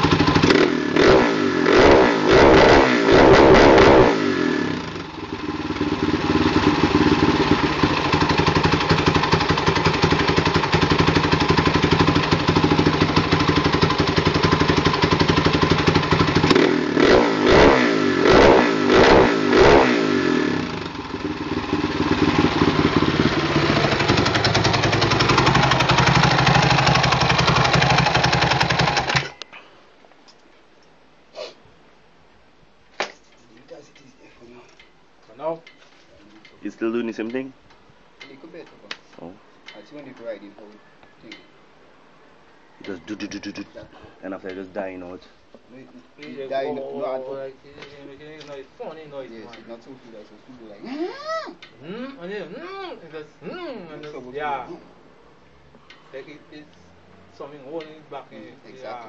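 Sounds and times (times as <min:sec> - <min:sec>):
motorcycle engine revving: 0:00.0 - 0:29.4.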